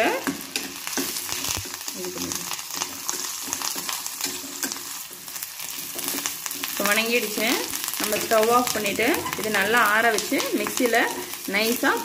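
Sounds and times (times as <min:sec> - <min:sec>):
food sizzling in hot oil: 0:00.0 - 0:12.0
metal spatula scraping pan: 0:02.8 - 0:06.9.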